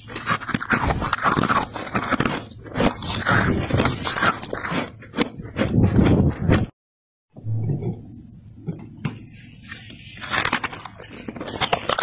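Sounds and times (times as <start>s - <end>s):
frost crunching and squeaking: 0.0s - 6.6s, 9.2s - 12.0s.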